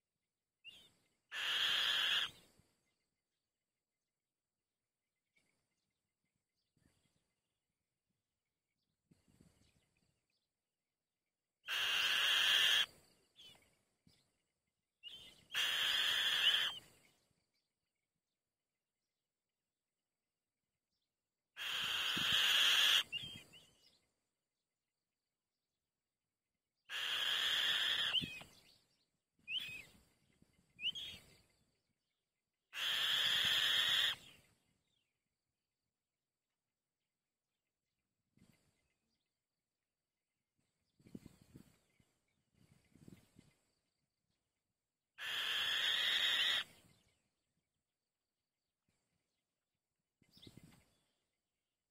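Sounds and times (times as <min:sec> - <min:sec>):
bird chicks harsh hoarse calls: 0:01.3 - 0:02.5, 0:11.6 - 0:13.0, 0:15.1 - 0:16.9, 0:21.6 - 0:23.6, 0:26.9 - 0:28.6, 0:32.8 - 0:34.5, 0:45.2 - 0:46.9.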